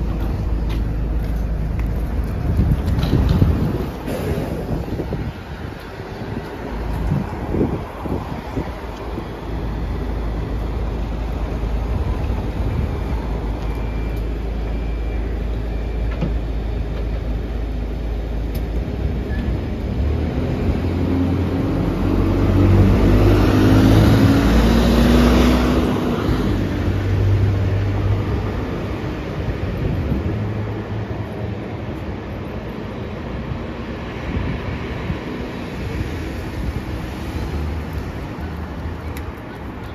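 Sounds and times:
bus diesel engine idling and revving: 0.0s - 39.9s.

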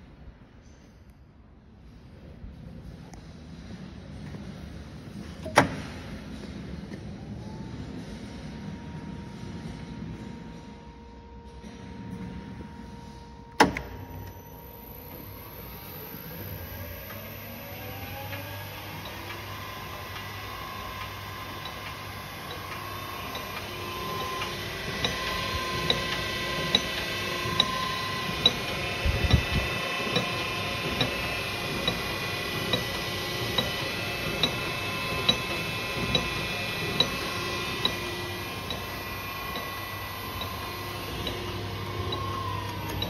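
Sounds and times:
ribbon blender motor whine: 14.8s - 43.0s.

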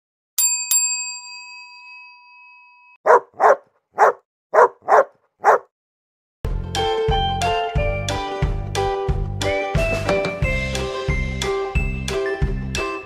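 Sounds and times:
bell-like dings: 0.4s - 3.0s
dog barking: 3.0s - 5.7s
music: 6.5s - 13.0s.

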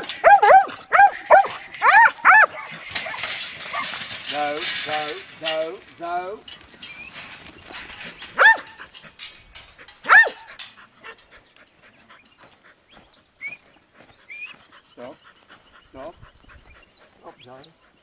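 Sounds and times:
light knocks and clatter: 0.0s - 12.5s
dog barking: 0.2s - 3.8s, 8.4s - 8.7s, 10.1s - 10.5s.

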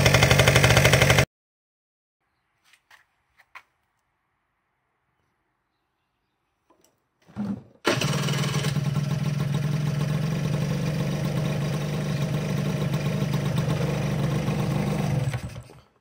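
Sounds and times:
scooter engine idling: 0.0s - 1.3s, 7.4s - 15.8s
electric starter cranking: 7.3s - 10.7s, 11.8s - 16.0s.

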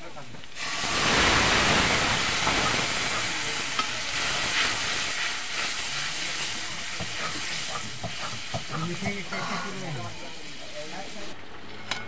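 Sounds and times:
liquid sizzling and bubbling: 0.0s - 11.9s.

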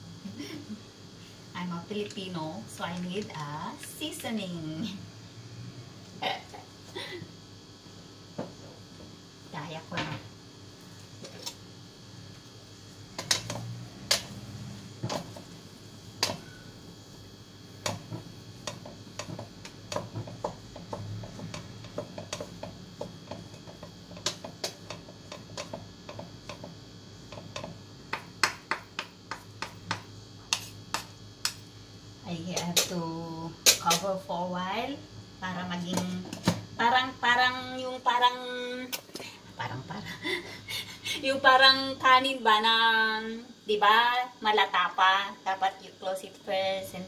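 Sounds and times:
utensil clicking against a pan: 18.6s - 31.6s.

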